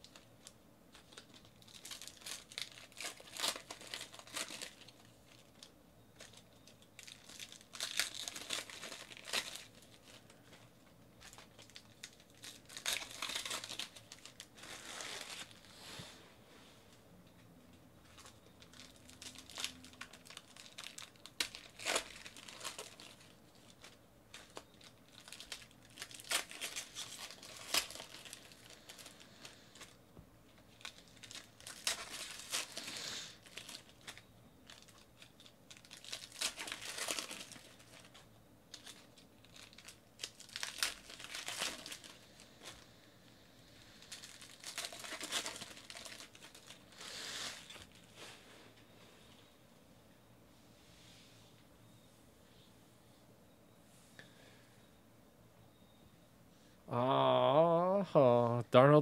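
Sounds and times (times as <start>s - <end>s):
foil wrappers crinkling and tearing: 0.0s - 15.7s, 18.0s - 30.0s, 30.6s - 43.1s, 43.7s - 48.2s.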